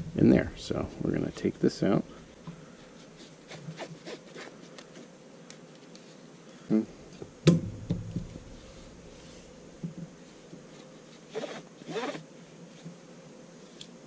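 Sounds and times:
strap rustling and scratching: 0:02.4 - 0:06.2, 0:08.2 - 0:13.0.

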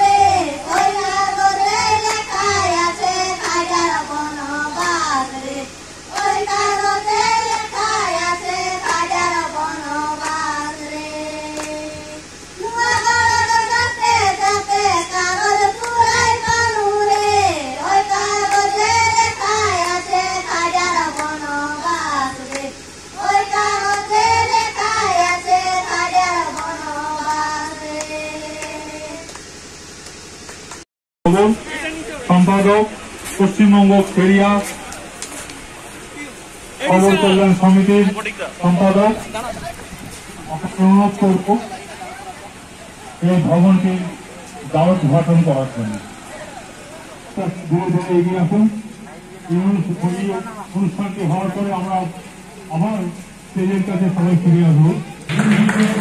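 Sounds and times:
girl singing into a microphone: 0:06.3 - 0:22.5.

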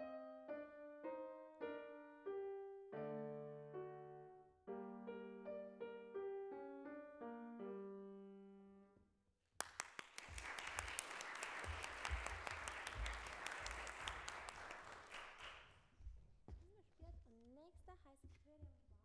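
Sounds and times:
audience applauding: 0:09.6 - 0:15.8.

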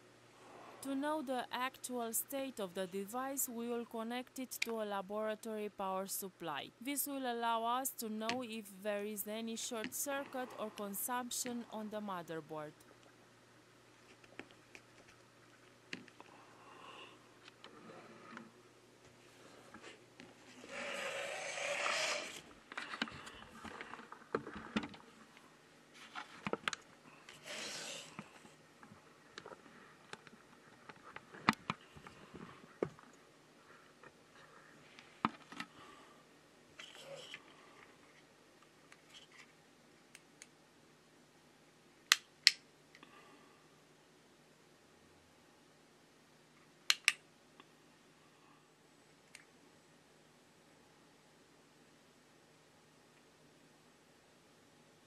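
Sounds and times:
hands rubbing and scraping cables: 0:19.2 - 0:35.7, 0:39.0 - 0:39.6.

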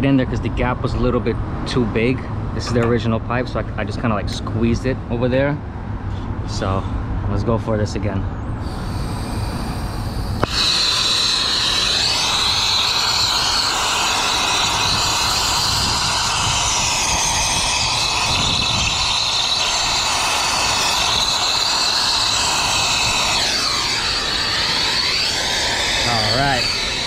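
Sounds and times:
torch flame hissing: 0:08.6 - 0:27.0.

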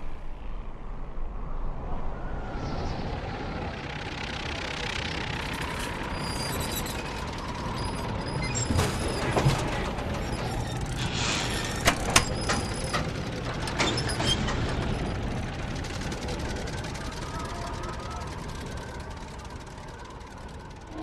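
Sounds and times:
biplane engine droning: 0:00.0 - 0:21.0
sharp mechanical clicks and knocks: 0:05.4 - 0:21.0.

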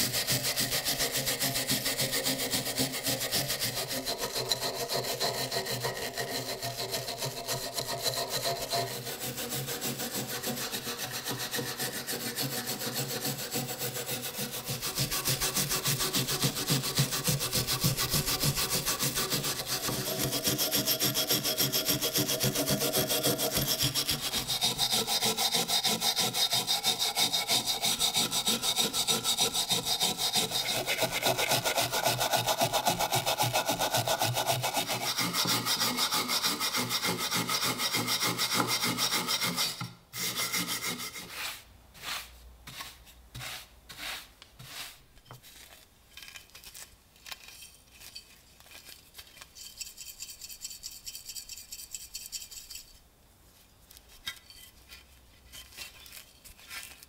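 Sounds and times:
wire brush scrubbing metal: 0:00.0 - 0:45.0.

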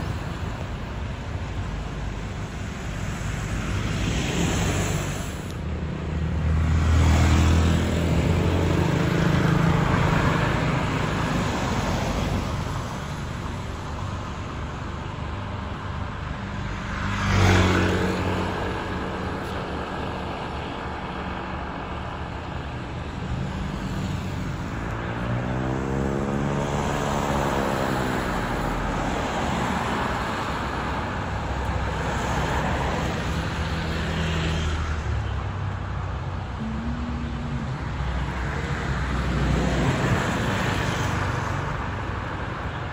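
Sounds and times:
cars driving past: 0:00.0 - 0:42.9.

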